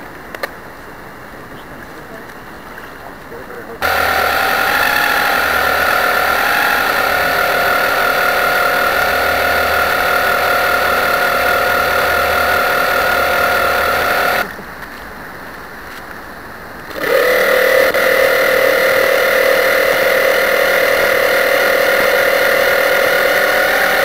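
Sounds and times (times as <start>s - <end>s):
model boat motor whining: 3.8s - 14.5s, 16.9s - 24.0s.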